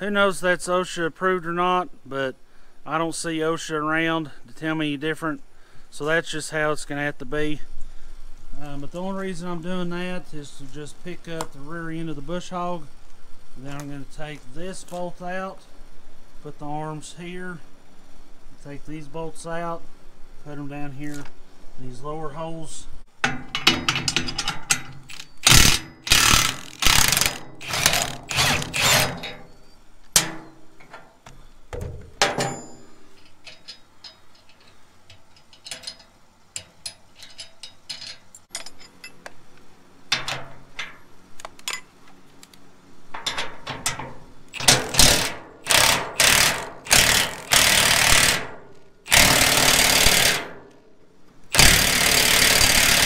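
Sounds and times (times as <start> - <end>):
metal clinks and tool knocks: 23.2 - 26.2, 30.2 - 39.4, 43.1 - 45.0
impact wrench hammering: 23.2 - 29.5, 30.2 - 31.0, 31.8 - 34.6, 43.2 - 50.6, 51.5 - 53.0.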